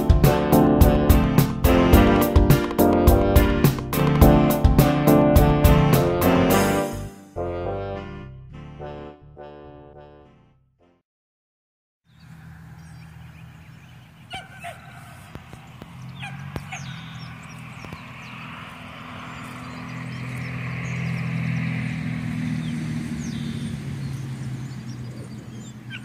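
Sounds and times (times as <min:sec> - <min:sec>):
birds chirping: 0:12.1 - 0:26.0.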